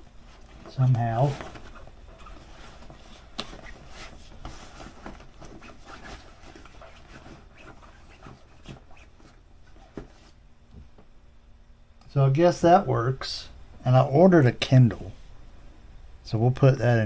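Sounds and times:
bag fabric rustling: 0:00.0 - 0:10.4.

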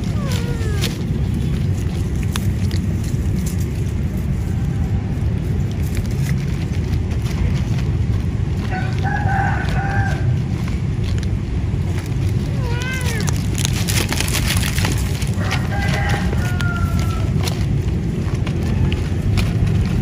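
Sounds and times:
cats crunching dry kibble: 0:00.0 - 0:20.0
steady low rumble: 0:00.0 - 0:20.0
rooster crowing: 0:08.7 - 0:10.4, 0:15.3 - 0:17.6.

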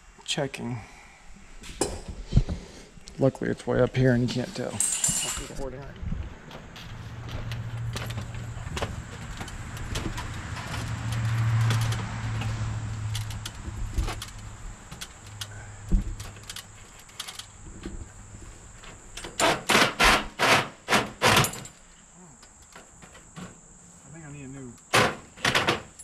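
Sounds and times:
metallic clicks and knocks: 0:07.3 - 0:17.5.

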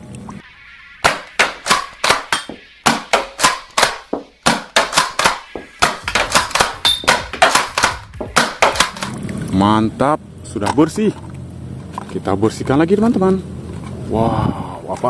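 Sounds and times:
toy blaster snapping shots: 0:01.0 - 0:09.1.

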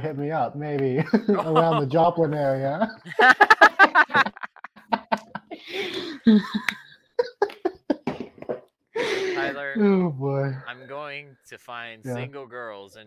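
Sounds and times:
person laughing: 0:01.0 - 0:02.1, 0:02.8 - 0:09.7.

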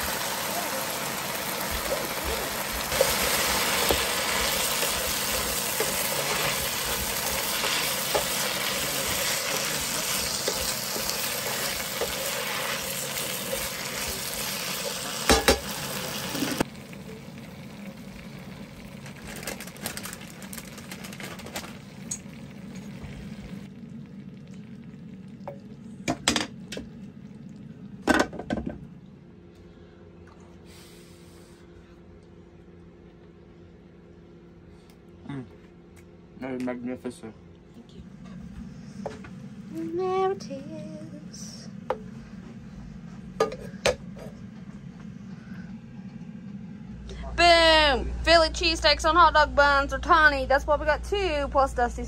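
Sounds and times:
meat and vegetables sizzling in skillet: 0:00.0 - 0:19.0.

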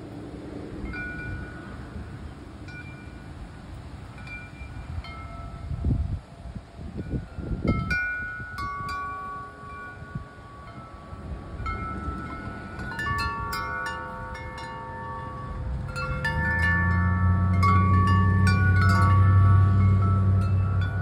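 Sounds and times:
wind chimes ringing: 0:00.8 - 0:03.4, 0:04.0 - 0:21.0
low rumble: 0:11.2 - 0:21.0.

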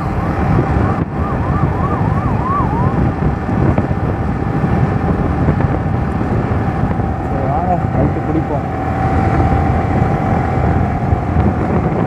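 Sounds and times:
siren-like wail: 0:00.0 - 0:03.5
motorcycle engine cruising: 0:00.0 - 0:12.0
wind rush on microphone: 0:00.0 - 0:12.0.

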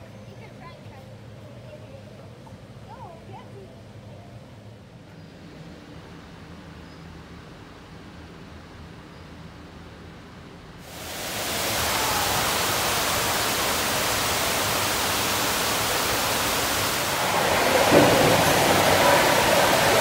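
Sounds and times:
fountain water rushing indoors: 0:10.6 - 0:20.0.

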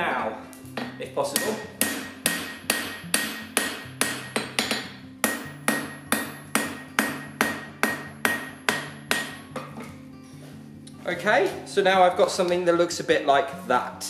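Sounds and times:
hammer ringing on anvil: 0:01.4 - 0:09.5.

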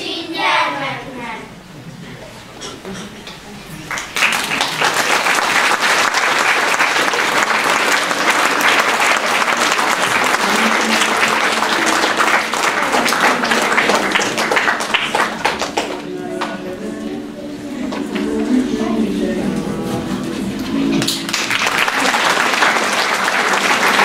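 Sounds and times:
audience applauding: 0:03.8 - 0:16.6, 0:21.0 - 0:24.0.

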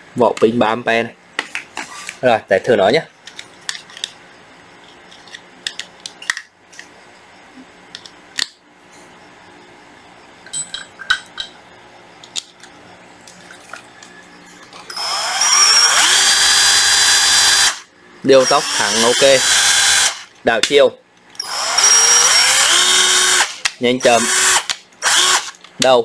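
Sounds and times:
drill motor whine: 0:14.9 - 0:20.2, 0:21.4 - 0:25.5.

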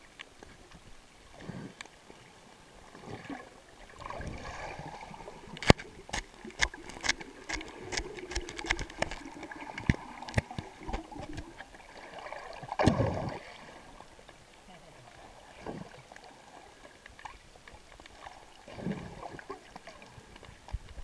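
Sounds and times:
sharp clicks and knocks: 0:05.6 - 0:11.6.

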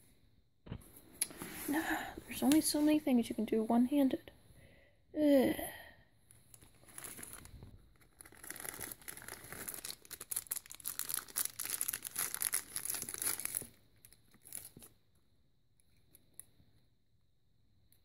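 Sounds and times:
plastic bag crinkling: 0:06.5 - 0:14.9.

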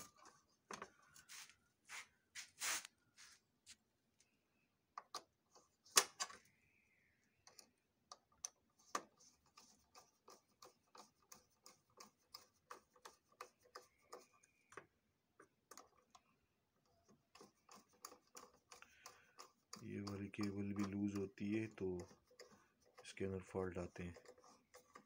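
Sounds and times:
screwdriver turning screw in metal: 0:17.3 - 0:25.0.

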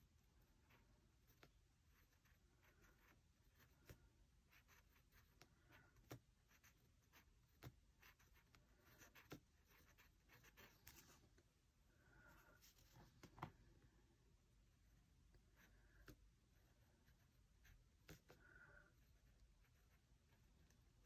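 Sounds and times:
pen nib scratching on paper: 0:00.6 - 0:11.2.

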